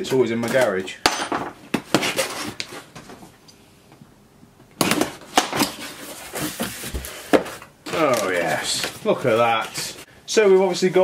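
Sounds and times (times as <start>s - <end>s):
cardboard knocks and scrapes: 4.8s - 9.9s
cardboard flaps rustling: 4.8s - 10.1s.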